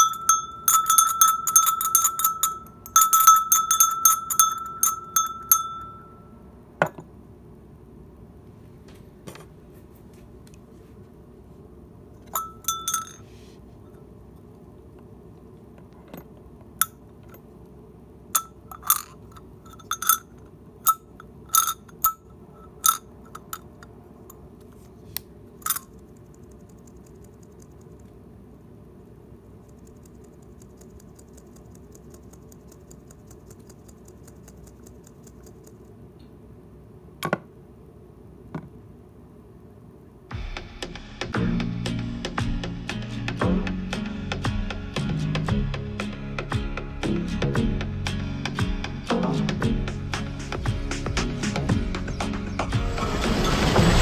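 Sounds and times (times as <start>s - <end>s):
bell clapper clanking: 0.0s - 6.3s, 12.3s - 13.2s, 18.4s - 20.3s.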